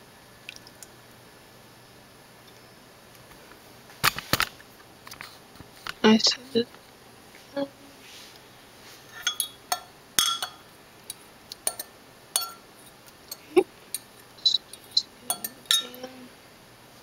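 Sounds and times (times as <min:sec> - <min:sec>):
fork clinking against glass: 0:09.1 - 0:12.7, 0:13.3 - 0:14.1, 0:14.7 - 0:16.2.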